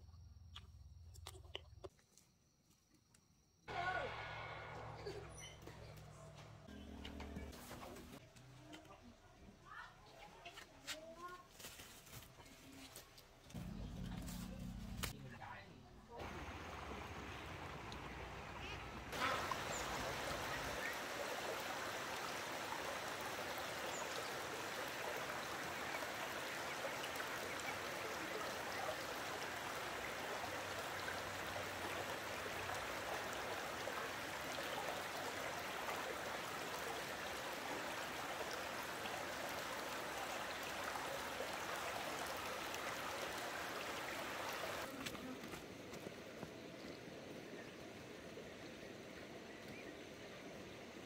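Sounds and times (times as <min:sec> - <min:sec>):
water rushing: 0:13.6 - 0:45.2.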